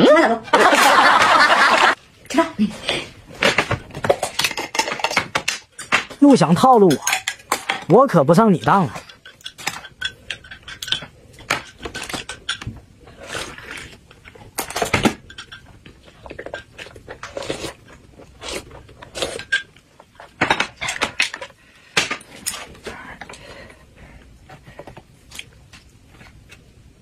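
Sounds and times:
utensils clinking against glass: 0:04.2 - 0:12.7.

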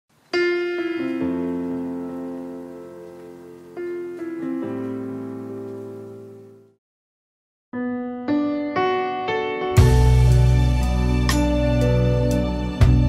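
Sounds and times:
slow solo piano: 0:00.4 - 0:06.8.

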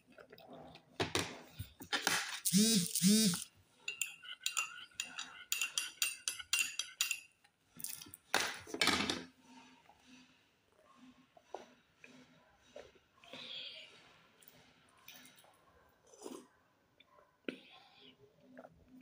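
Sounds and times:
loud noisy sip: 0:02.4 - 0:03.4
person humming: 0:02.5 - 0:03.4
teaspoon clinking in ceramic cup: 0:03.9 - 0:08.0.

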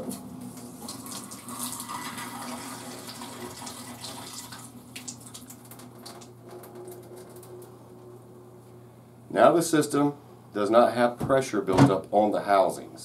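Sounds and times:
water stream splashing into metal sink: 0:00.8 - 0:06.3.

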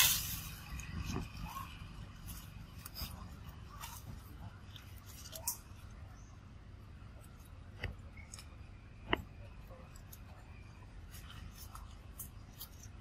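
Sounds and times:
twigs snapping: 0:00.0 - 0:06.0
low steady rumble: 0:00.0 - 0:13.0.

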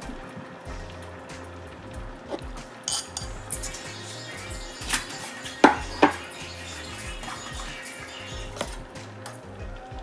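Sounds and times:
background music: 0:00.0 - 0:10.0.

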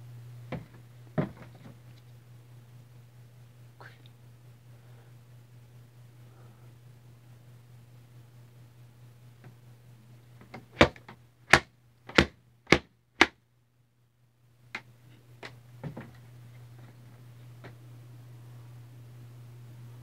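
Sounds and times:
steady low hum: 0:00.0 - 0:20.0
sharp knocks: 0:10.7 - 0:13.3.

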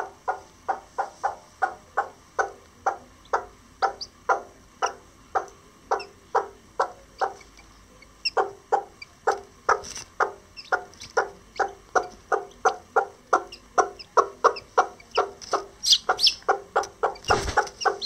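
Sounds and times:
hen clucking: 0:00.0 - 0:18.0.

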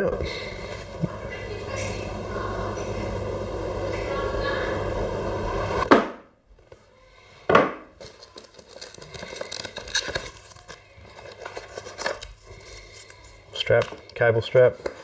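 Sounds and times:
packaging rustling and tapping: 0:08.0 - 0:12.4.

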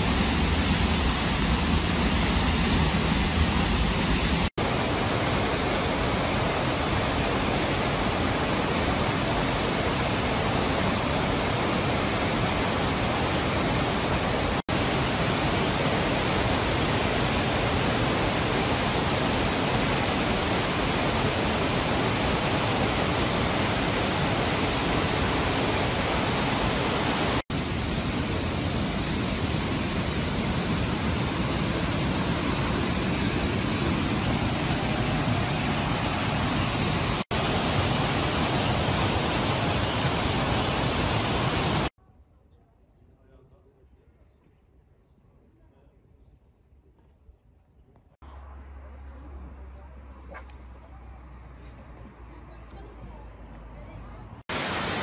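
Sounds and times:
waterfall rushing: 0:00.0 - 0:41.9, 0:54.5 - 0:55.0.

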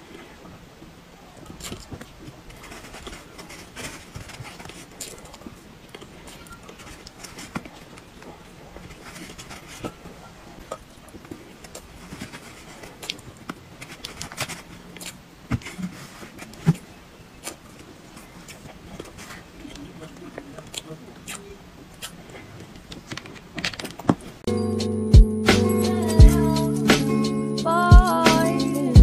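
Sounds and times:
mouth smacks: 0:20.6 - 0:22.4.

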